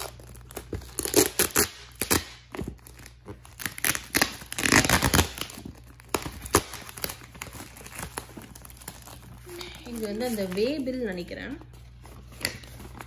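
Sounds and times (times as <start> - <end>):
plastic wrapping tearing and crinkling: 0.0 - 13.0.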